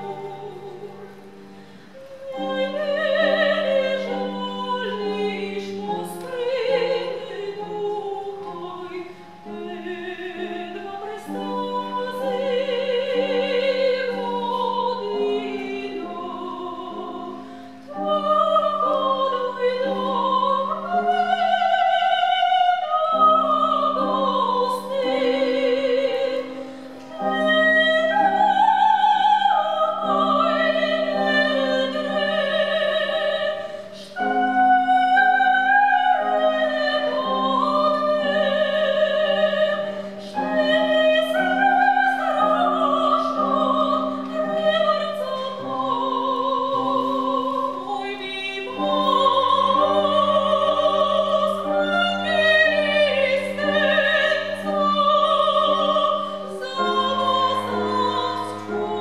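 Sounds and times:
cello: 0:00.0 - 0:59.0
piano: 0:00.0 - 0:59.0
two sopranos singing: 0:02.0 - 0:59.0.

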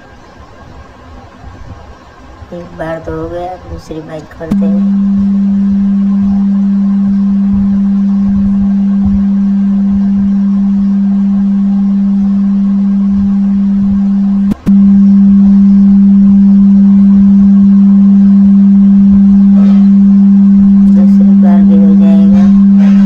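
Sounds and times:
steady low tone from phone speaker: 0:01.3 - 0:23.0
click: 0:14.5 - 0:14.8.

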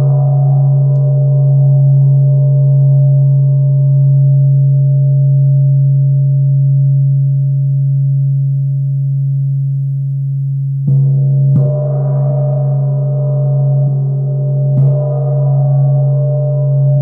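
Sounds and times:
mallet striking gong: 0:10.9 - 0:14.0, 0:14.7 - 0:16.2.

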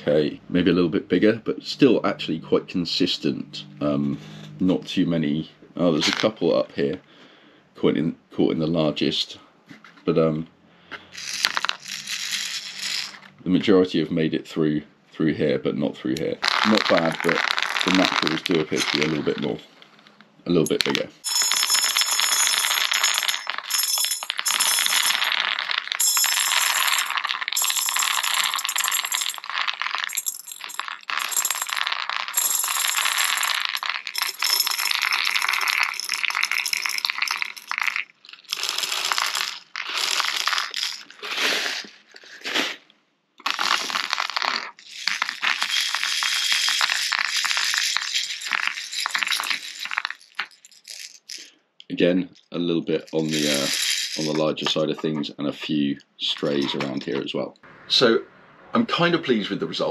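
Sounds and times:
pellets rattling in shaken tray: 0:11.2 - 0:13.2, 0:16.4 - 0:19.4, 0:21.3 - 0:42.4, 0:43.4 - 0:51.5, 0:53.1 - 0:54.6
plastic pellets clattering on metal tray: 0:11.2 - 0:13.4, 0:16.4 - 0:19.6, 0:20.8 - 0:42.5, 0:43.4 - 0:51.5, 0:53.1 - 0:54.9.

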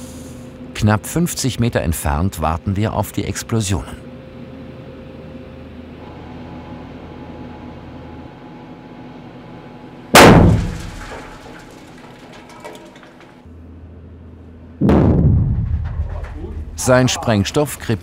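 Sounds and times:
underground explosion bang: 0:10.2 - 0:12.8, 0:14.8 - 0:17.0
faint clattering: 0:10.4 - 0:13.4.

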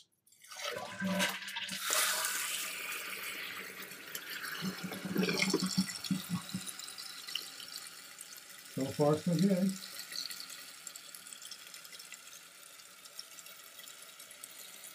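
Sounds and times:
tank refilling with water: 0:00.3 - 0:14.9
toilet flushing: 0:00.4 - 0:11.0.

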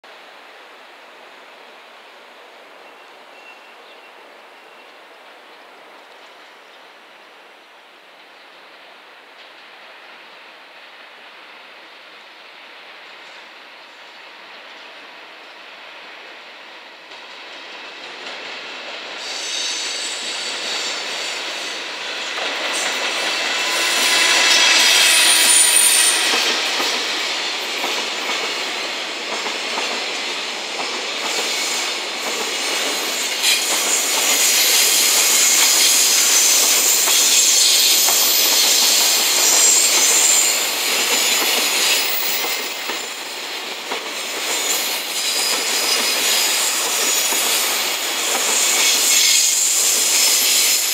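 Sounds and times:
electric locomotive passing: 0:08.2 - 0:50.9
steel wheels clattering on rails: 0:22.3 - 0:50.9
high-pitched wheel squeal: 0:23.6 - 0:26.4.

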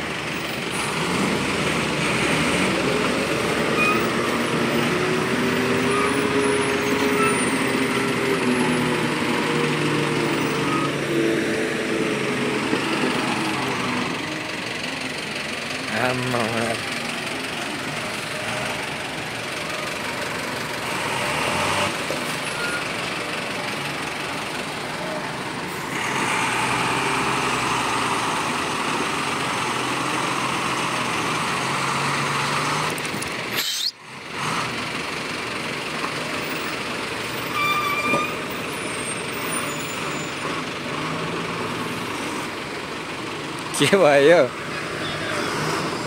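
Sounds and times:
diesel truck engine revving: 0:00.0 - 0:46.0
short high squeal: 0:03.7 - 0:04.2, 0:06.8 - 0:07.7, 0:10.4 - 0:11.0, 0:33.5 - 0:34.0, 0:37.4 - 0:40.0.

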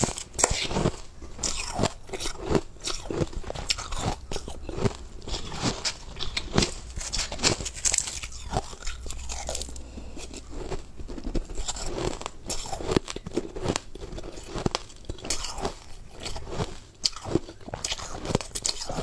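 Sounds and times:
chewing crushed ice: 0:00.0 - 0:19.0.

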